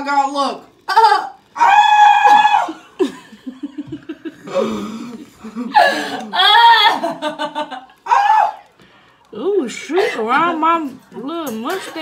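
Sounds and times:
person laughing: 2.2 - 8.0.

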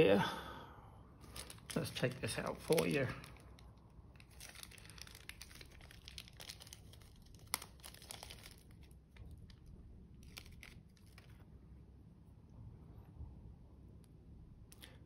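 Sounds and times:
plastic bag crinkling: 1.2 - 11.4.

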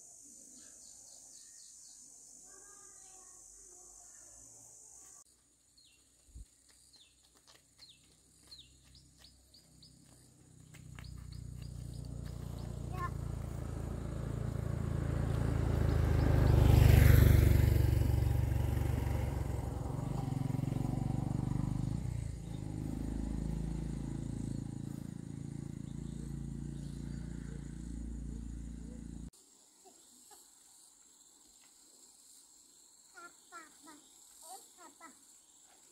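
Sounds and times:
faint chirps: 0.0 - 7.2
vehicle engine passing: 9.0 - 29.3.

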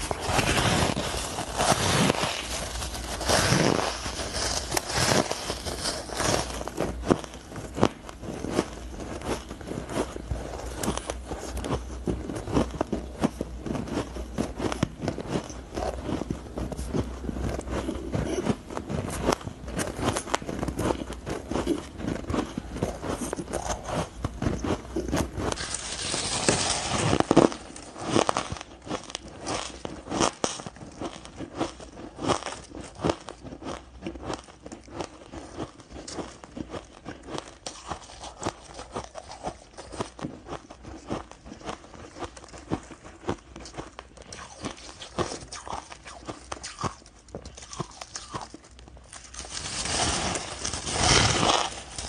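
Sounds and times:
ice crumbling crackles: 0.0 - 13.0, 23.1 - 31.4, 44.3 - 52.0
ice being bitten and chewed: 0.0 - 52.0.

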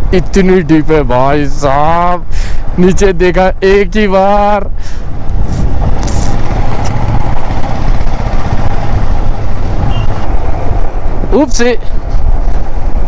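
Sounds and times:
motorcycle engine rumble: 3.6 - 13.0.

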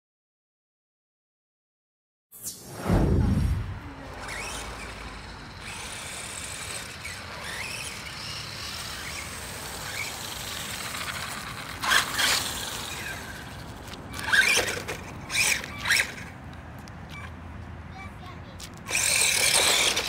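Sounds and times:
loud rushes of noise: 2.4 - 16.2
tyre noise on asphalt: 3.0 - 17.8, 18.4 - 20.0.

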